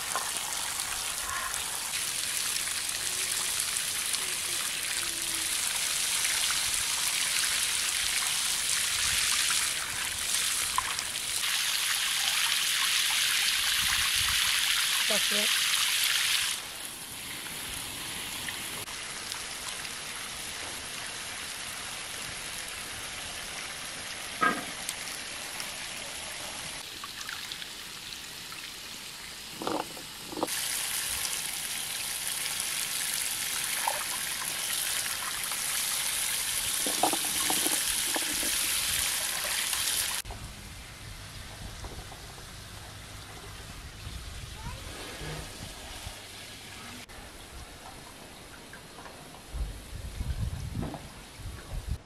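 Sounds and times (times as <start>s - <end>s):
water trickling and splashing in a basin: 0.0s - 22.3s, 24.3s - 40.3s.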